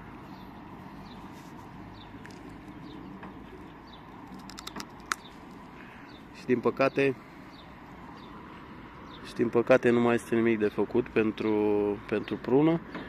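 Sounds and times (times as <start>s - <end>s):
small birds chirping: 0.0s - 13.0s
sharp clicks: 4.2s - 5.6s.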